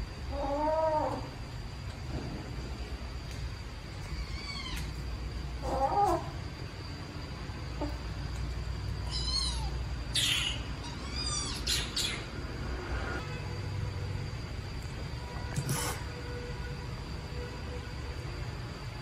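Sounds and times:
kittens meowing: 0:04.0 - 0:05.0, 0:09.0 - 0:12.2.

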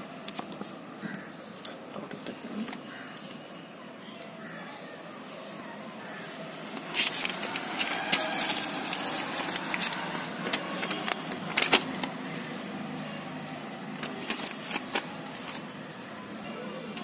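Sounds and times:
paper rustling and crinkling: 0:06.7 - 0:12.2, 0:13.6 - 0:15.7.

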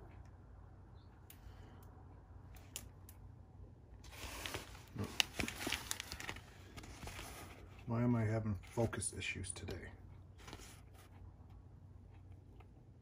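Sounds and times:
plastic film crackling: 0:04.0 - 0:07.8.

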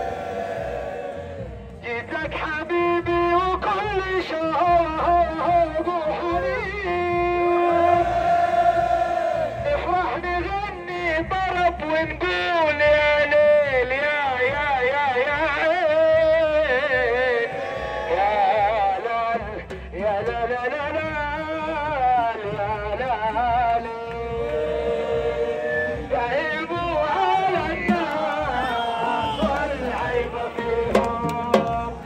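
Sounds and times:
drum beat: 0:05.5 - 0:10.2, 0:16.1 - 0:32.0
crowd singing a chant: 0:07.6 - 0:09.6, 0:23.3 - 0:32.0.

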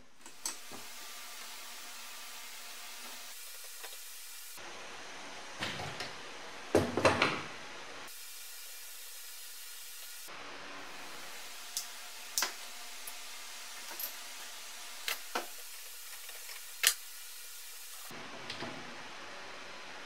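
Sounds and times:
steady hiss: 0:00.0 - 0:04.8, 0:07.9 - 0:18.1
metal tool clinking on fittings: 0:13.8 - 0:14.2.

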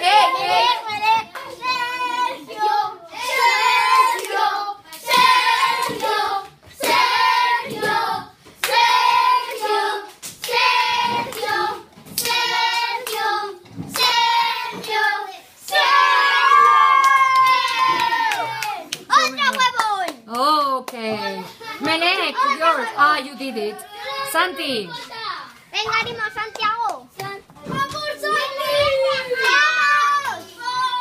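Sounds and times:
children chanting: 0:00.0 - 0:19.8, 0:27.7 - 0:31.0
hand clapping: 0:16.6 - 0:21.0, 0:26.4 - 0:27.4.

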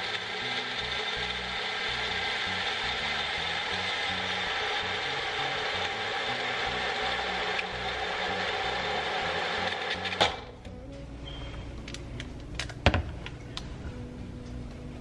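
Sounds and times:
blender motor running: 0:00.0 - 0:10.3.

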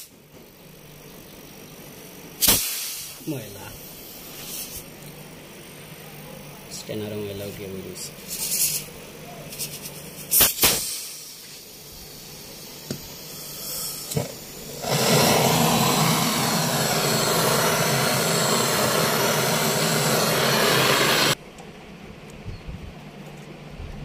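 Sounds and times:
gas torch hissing: 0:02.4 - 0:05.0, 0:09.5 - 0:21.4.

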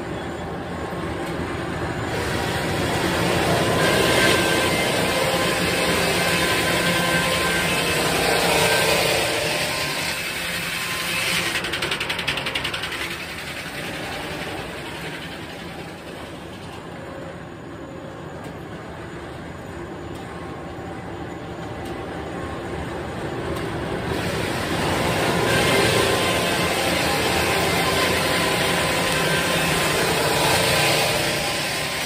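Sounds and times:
mill machinery running: 0:00.0 - 0:32.0
circular saw cutting log: 0:02.0 - 0:16.2, 0:24.1 - 0:32.0
fast rattle: 0:11.2 - 0:16.8.

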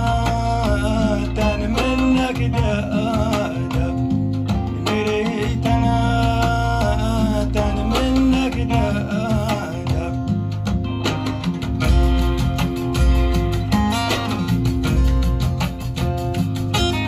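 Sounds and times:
music over loudspeakers: 0:00.0 - 0:17.0.

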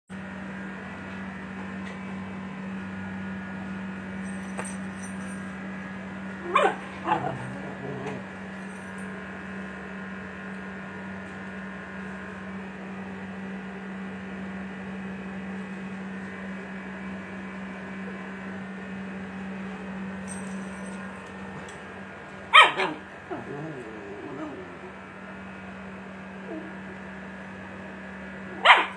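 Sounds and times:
steady low hum: 0:00.2 - 0:28.9
dog barking: 0:06.4 - 0:07.4, 0:22.5 - 0:23.5, 0:28.5 - 0:28.9.

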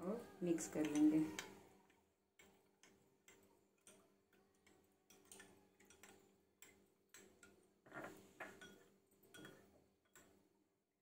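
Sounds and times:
spoon clinking against glass bowl: 0:02.4 - 0:10.3.

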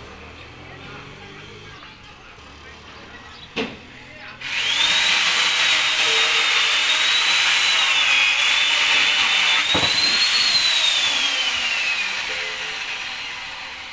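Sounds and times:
machine whining: 0:04.4 - 0:13.9.

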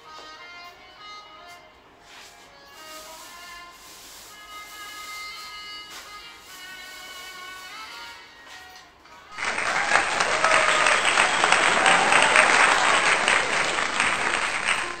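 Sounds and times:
applause: 0:09.3 - 0:15.0.

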